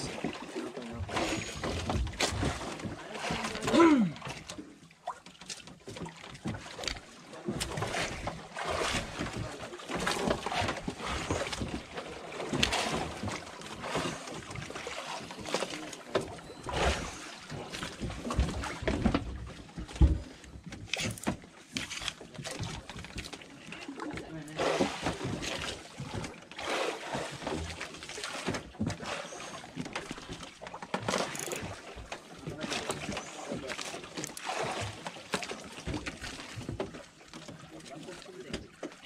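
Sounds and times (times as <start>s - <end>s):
water: 0.0s - 39.0s
wind: 0.0s - 39.0s
fishing rod and reel rustling: 20.8s - 23.9s, 31.0s - 31.8s.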